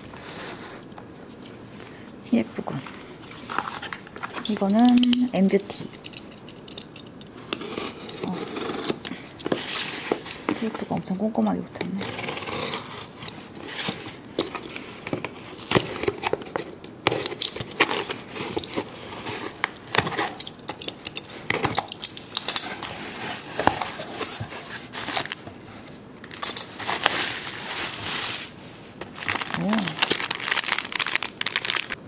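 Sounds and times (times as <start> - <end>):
tape tearing: 11.9 - 25.4, 26.2 - 32.0
knife slitting packing tape: 12.0 - 14.9
bubble wrap crinkling: 12.0 - 32.0.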